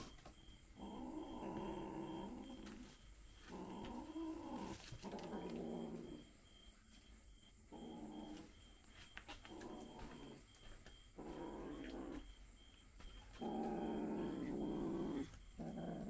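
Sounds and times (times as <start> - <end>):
kittens growling: 0.7 - 6.3, 9.4 - 10.5, 11.1 - 12.4, 13.3 - 16.0.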